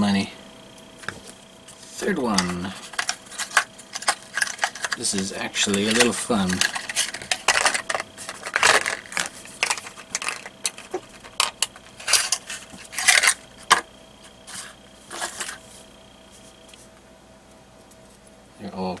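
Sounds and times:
cardboard box rustling: 0:05.7 - 0:13.4.

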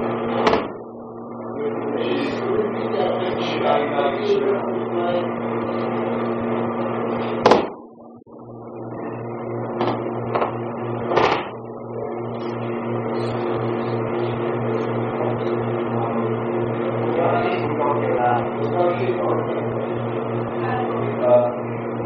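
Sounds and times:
slaps and thumps on a mat: 0:07.4 - 0:07.8, 0:11.1 - 0:11.5.

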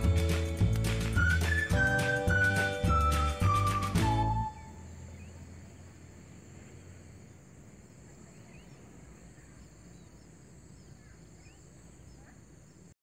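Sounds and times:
background music: 0:00.0 - 0:04.7
bird chirps: 0:01.0 - 0:06.0, 0:06.7 - 0:12.9
insects trilling: 0:04.5 - 0:13.0.

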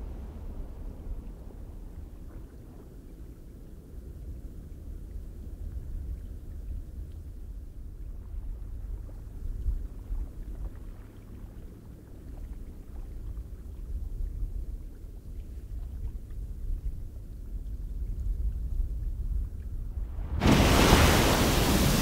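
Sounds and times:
low rumbling wind gusts: 0:00.0 - 0:03.9, 0:15.9 - 0:22.0.

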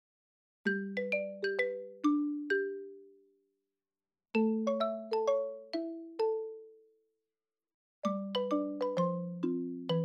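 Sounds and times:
chime-like mallet melody: 0:00.7 - 0:03.2, 0:04.4 - 0:06.8, 0:08.1 - 0:10.0.

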